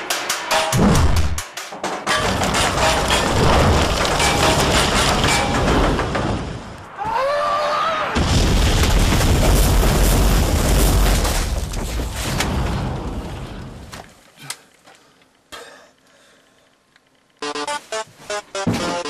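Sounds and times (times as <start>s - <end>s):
explosion boom and rumble: 8.2s - 13.8s.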